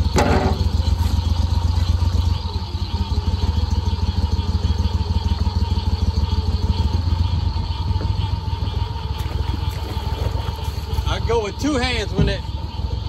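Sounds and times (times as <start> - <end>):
boat motor droning: 0.0 - 13.0.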